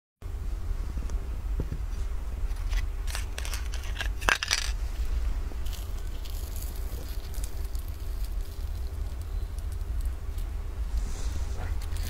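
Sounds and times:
low hum: 0.2s - 12.0s
pastry and foil crackling: 2.5s - 12.0s.

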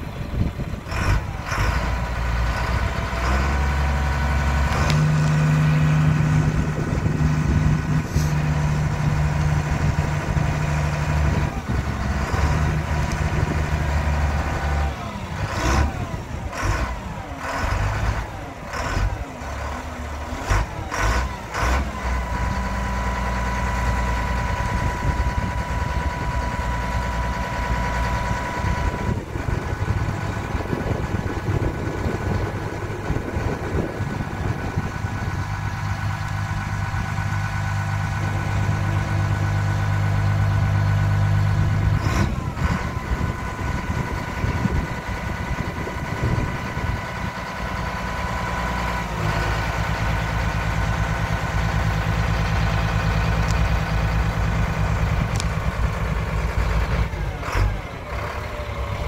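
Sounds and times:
diesel truck engine running: 0.0s - 59.0s.

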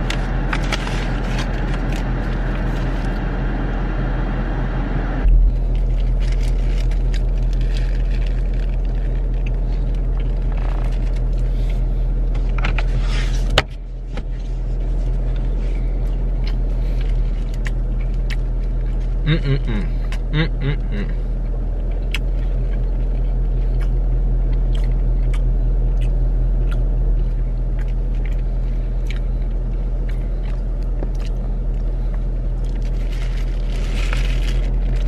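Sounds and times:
paper wrapper crinkling: 0.0s - 3.0s, 5.3s - 11.5s, 32.6s - 35.0s
car idling hum: 0.0s - 35.0s.

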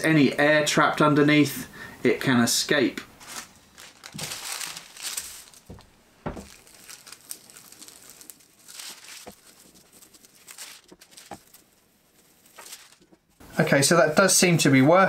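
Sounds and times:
paper rustling under an iron: 3.2s - 13.4s.

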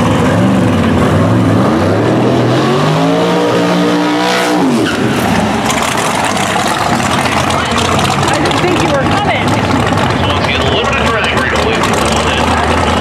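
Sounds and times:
drag car engine revving: 0.0s - 13.0s
tyres spinning: 4.8s - 13.0s.

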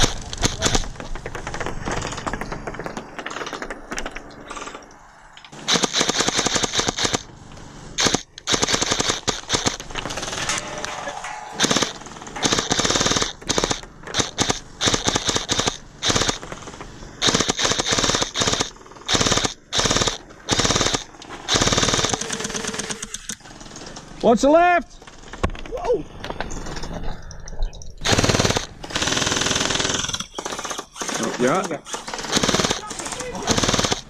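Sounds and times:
gel blasters firing bursts: 5.6s - 7.3s, 8.0s - 9.8s, 11.6s - 16.6s, 17.2s - 23.2s, 28.0s - 34.0s.

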